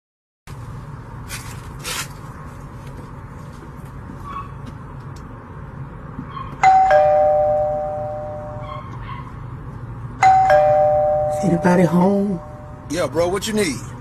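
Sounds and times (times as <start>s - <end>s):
doorbell chime ding-dong: 6.6s - 8.7s, 10.2s - 12.8s.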